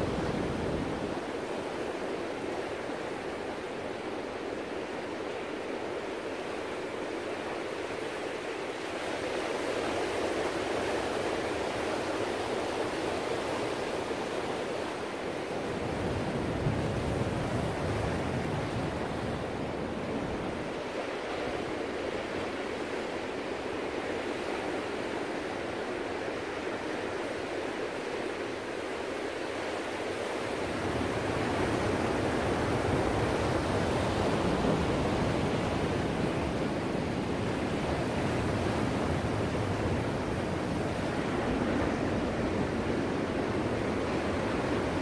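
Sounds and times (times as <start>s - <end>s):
ocean waves breaking: 13.4s - 45.0s.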